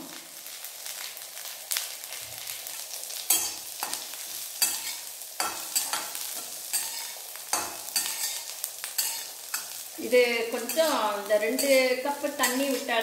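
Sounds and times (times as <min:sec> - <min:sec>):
food sizzling in hot oil: 0:00.0 - 0:13.0
steel spatula scraping a pan: 0:04.6 - 0:09.8, 0:10.5 - 0:12.9.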